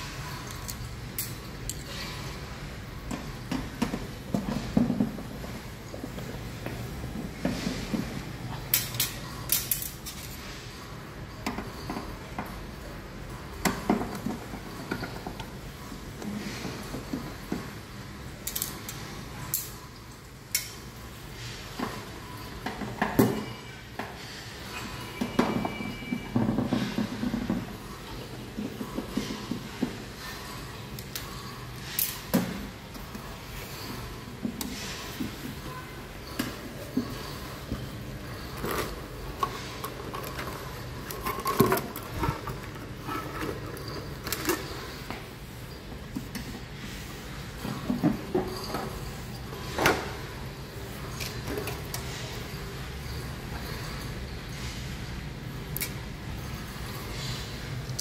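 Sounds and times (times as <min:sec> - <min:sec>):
clicks and knocks of metal parts: 0:00.1 - 0:02.3, 0:07.4 - 0:10.6, 0:18.3 - 0:24.2, 0:25.2 - 0:45.3.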